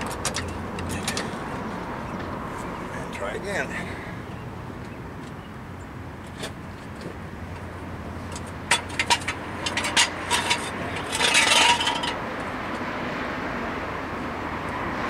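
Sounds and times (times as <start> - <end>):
metal scraping rasp: 8.3 - 12.3.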